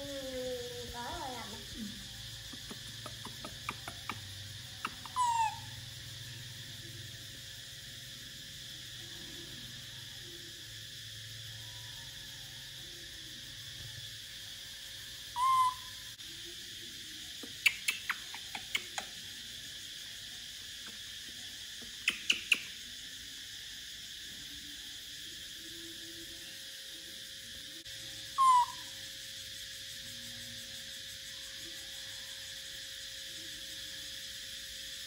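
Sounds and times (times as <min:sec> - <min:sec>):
baby monkey cooing: 0:00.0 - 0:06.2, 0:15.4 - 0:16.1, 0:28.3 - 0:29.0
steady high hiss: 0:00.0 - 0:35.0.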